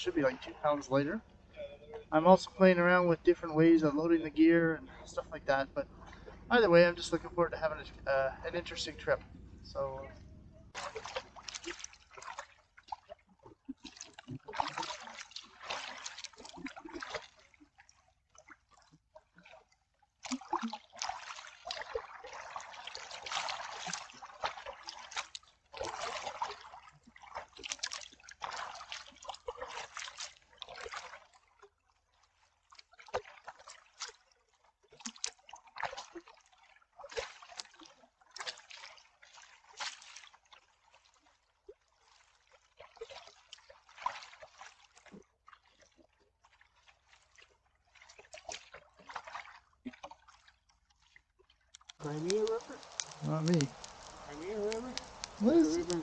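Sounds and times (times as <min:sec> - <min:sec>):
paddle strokes splashing in water: 0:10.0 - 0:56.0
water dripping: 0:20.2 - 0:30.1, 0:51.6 - 0:56.0.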